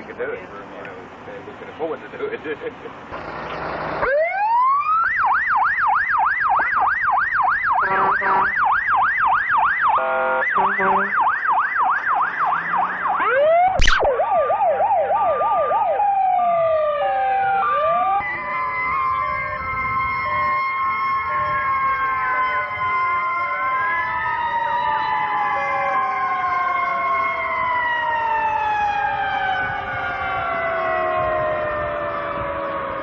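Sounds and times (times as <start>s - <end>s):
emergency siren wailing and yelping: 3.1s - 33.0s
second falling siren: 4.0s - 33.0s
vehicle horn blast: 7.8s - 8.6s, 10.0s - 11.2s.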